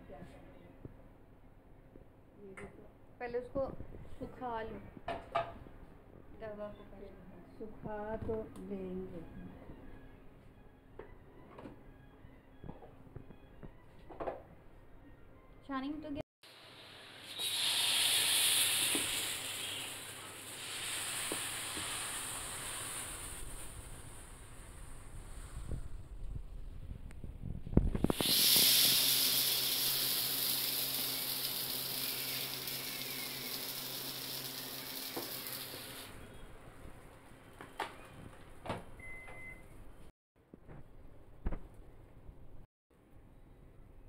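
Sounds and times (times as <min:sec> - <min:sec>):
batter sizzling on a griddle: 0:16.5 - 0:26.0, 0:28.0 - 0:36.1.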